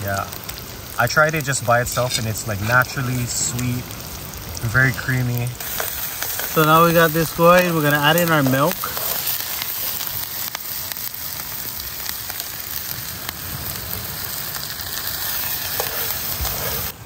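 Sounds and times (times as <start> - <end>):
onions sizzling in a pan: 0.0 - 17.0.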